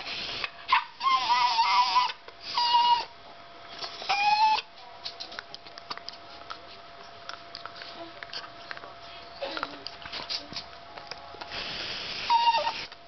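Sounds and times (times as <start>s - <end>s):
dog whining: 0.7s - 3.1s, 3.8s - 4.7s, 12.2s - 13.0s.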